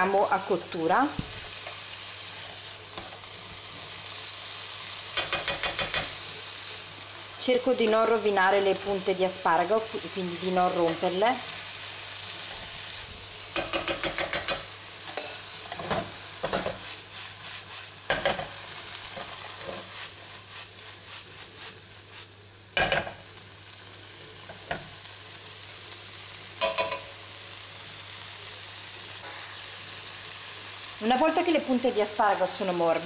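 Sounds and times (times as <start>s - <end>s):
vegetables sizzling in frying pan: 0.0s - 33.0s
utensil knocking against pan: 5.2s - 6.1s, 13.6s - 14.6s, 26.6s - 27.1s
utensil scraping a pan: 13.6s - 22.3s.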